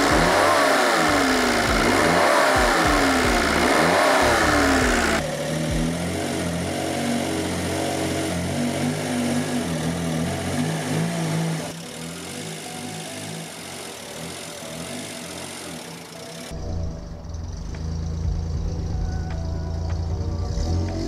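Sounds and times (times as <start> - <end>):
car engine revving and idling: 0.0 - 21.0.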